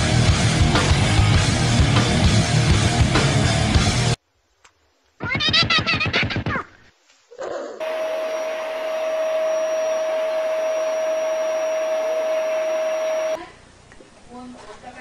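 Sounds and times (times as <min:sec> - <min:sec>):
electric fan motor whining: 0:07.8 - 0:13.5.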